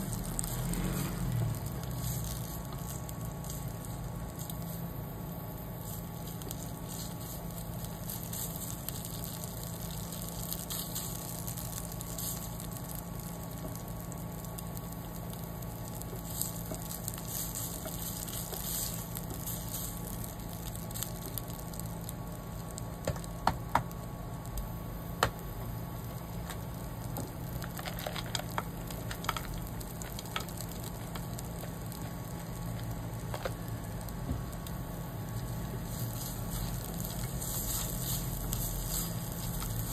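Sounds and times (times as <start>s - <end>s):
paste sizzling in oil: 0.0s - 23.0s, 35.3s - 39.9s
spatula stirring in pan: 15.9s - 21.2s, 35.7s - 39.9s.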